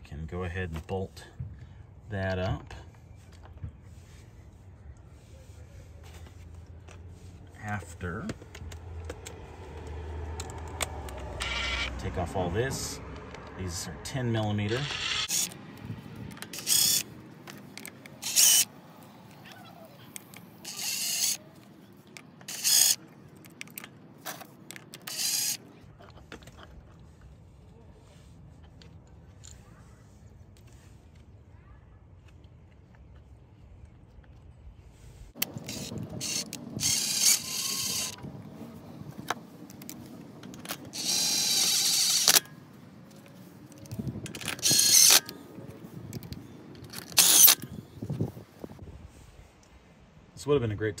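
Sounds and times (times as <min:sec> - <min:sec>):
impact driver whining: 0:10.3 - 0:12.3, 0:14.2 - 0:15.6, 0:18.2 - 0:18.7, 0:35.4 - 0:38.2, 0:40.9 - 0:42.5, 0:44.4 - 0:45.3, 0:47.0 - 0:47.6
ratchet wrench pawl clicking: 0:10.4 - 0:12.0, 0:14.6 - 0:15.6, 0:16.4 - 0:17.1, 0:18.2 - 0:18.7, 0:20.6 - 0:21.4, 0:22.5 - 0:23.0, 0:24.9 - 0:25.6, 0:35.4 - 0:38.2, 0:40.9 - 0:42.5, 0:44.3 - 0:45.3, 0:47.0 - 0:47.6.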